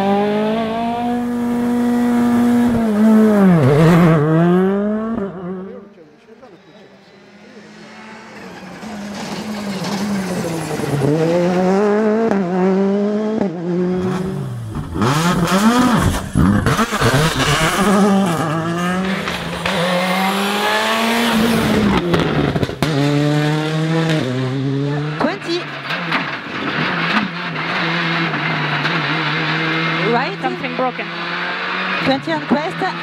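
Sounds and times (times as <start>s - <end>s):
rally car engines revving hard: 0.0s - 33.0s
car passing close by: 1.9s - 14.6s.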